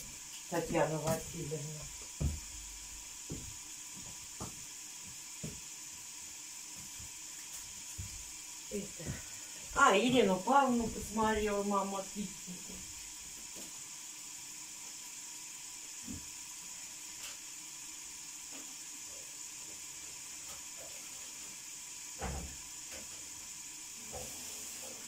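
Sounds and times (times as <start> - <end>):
steady hiss: 0.0 - 25.0.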